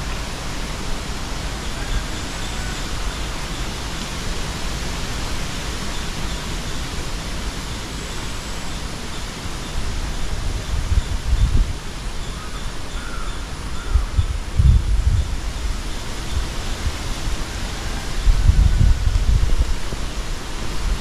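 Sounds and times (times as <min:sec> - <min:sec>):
wind noise: 0:09.0 - 0:21.0
wind gusts buffeting microphone: 0:09.7 - 0:12.0, 0:13.5 - 0:21.0.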